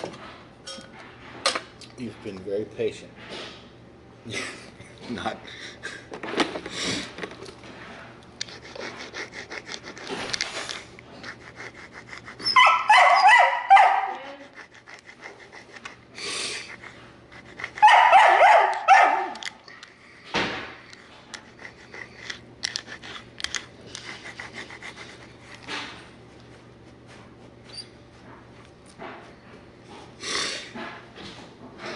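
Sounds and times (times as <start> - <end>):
dog yelping and whining: 12.3 - 14.4, 17.7 - 19.4.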